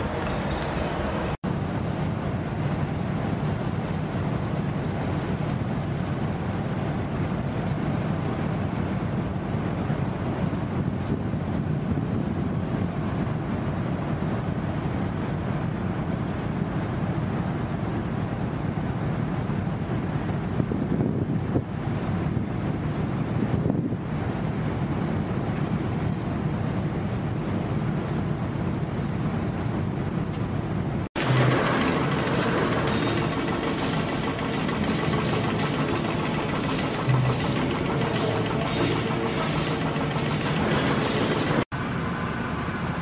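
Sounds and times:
ship machinery rumble: 0.0 - 43.0
wind on microphone: 20.3 - 25.6.

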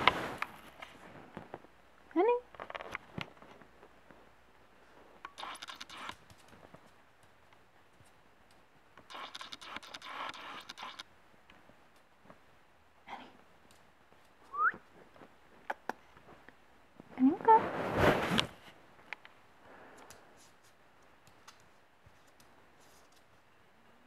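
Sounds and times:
sharp clicks: 5.2 - 6.5, 8.5 - 11.1
claws scratching on floor: 5.4 - 7.0, 9.1 - 11.0.

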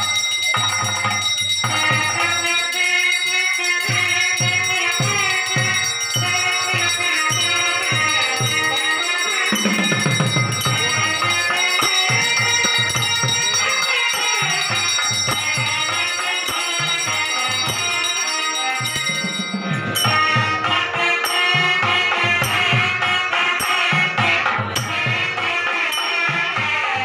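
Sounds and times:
devotional music with percussion: 0.0 - 27.0.

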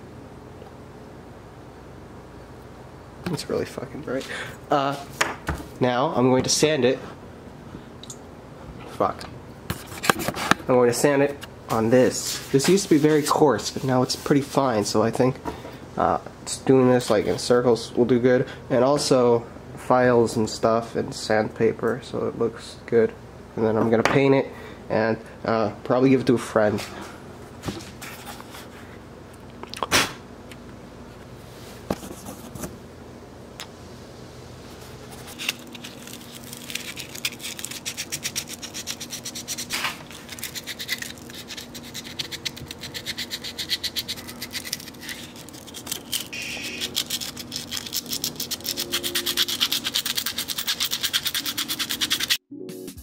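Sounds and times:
hand sanding plastic: 12.1 - 14.7, 35.2 - 52.4.

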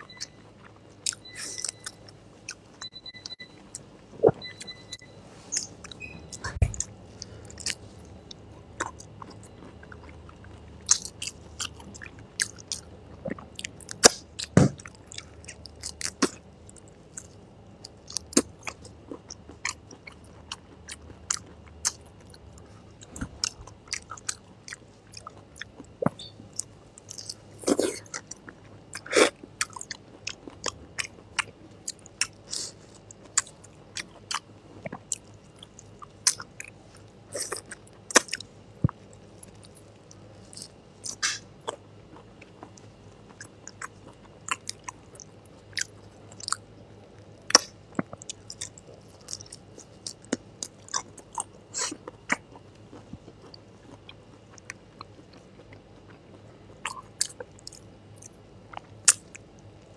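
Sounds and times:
wet chewing and smacking: 23.0 - 59.8
crunching of shrimp being bitten: 47.4 - 56.2.

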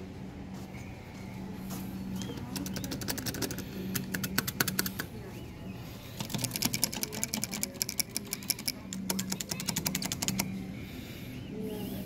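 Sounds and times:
faint arcade music: 0.0 - 12.0
steady low hum: 0.0 - 12.0
joystick clicking fast: 2.6 - 5.0, 6.2 - 10.5.

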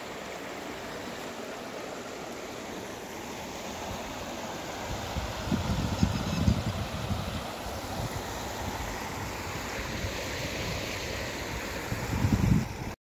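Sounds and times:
river water rushing over stones: 0.0 - 13.0
wind buffeting microphone: 4.8 - 8.8, 11.8 - 13.0.

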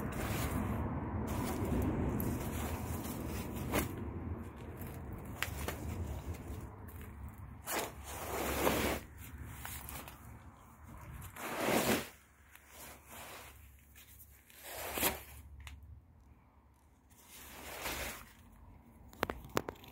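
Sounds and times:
nylon jacket rustling: 0.0 - 6.7.

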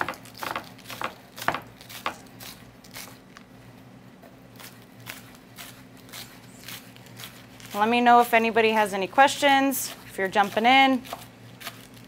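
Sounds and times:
knife chopping on wooden board: 0.0 - 2.2, 9.9 - 11.8.

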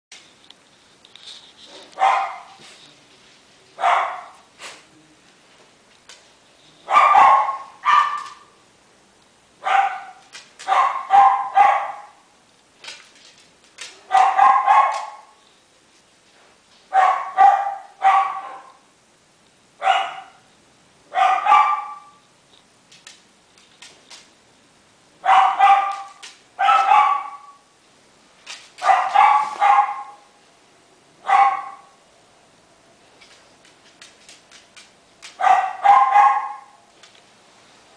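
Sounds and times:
puppy yipping and barking: 6.9 - 8.5, 9.7 - 12.2, 14.1 - 15.2, 21.2 - 22.2, 25.3 - 27.6, 28.8 - 30.2, 31.3 - 31.9, 35.4 - 36.8.

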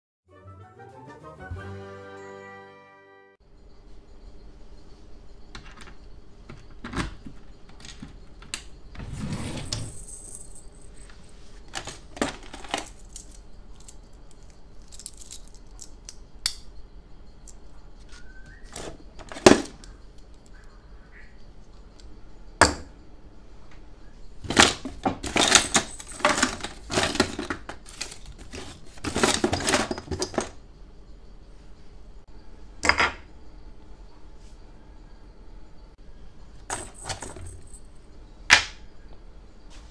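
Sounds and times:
small objects clattering in drawer: 5.5 - 16.2, 17.5 - 20.5, 24.4 - 30.6, 36.6 - 37.9
drawer opening: 8.9 - 10.3, 11.7 - 13.0, 18.7 - 19.8, 24.4 - 30.5, 36.7 - 37.6.

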